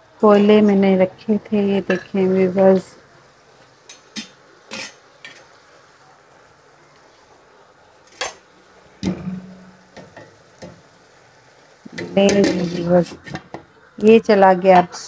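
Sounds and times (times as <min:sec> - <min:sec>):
faint steady hiss: 0:00.0 - 0:15.0
metal kitchenware clinking: 0:03.9 - 0:05.5, 0:09.0 - 0:10.3.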